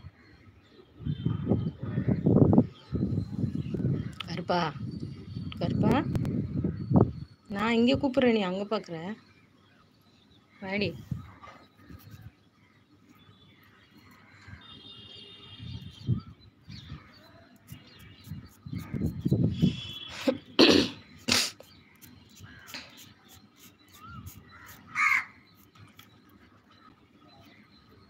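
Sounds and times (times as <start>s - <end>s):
faint high bird chirps: 9.3s - 28.0s
loud harsh bird calls: 14.0s - 25.8s.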